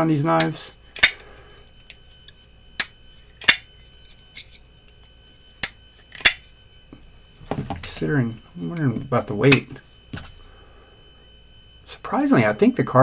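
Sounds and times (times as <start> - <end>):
folding knife clicking: 0.4 - 1.2, 2.8 - 3.6, 5.6 - 6.4.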